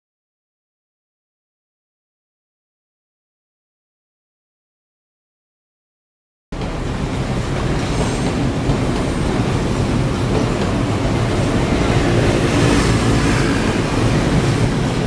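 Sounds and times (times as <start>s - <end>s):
train wheels rumbling on track: 6.6s - 15.0s.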